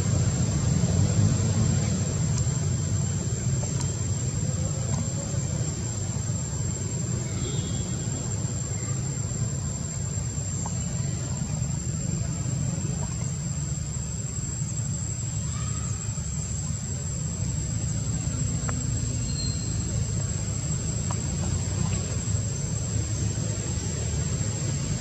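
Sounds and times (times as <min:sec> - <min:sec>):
high-pitched insect whine: 0:00.0 - 0:25.0
low outdoor rumble: 0:00.0 - 0:25.0
faint ticks: 0:03.6 - 0:04.0, 0:18.6 - 0:18.9.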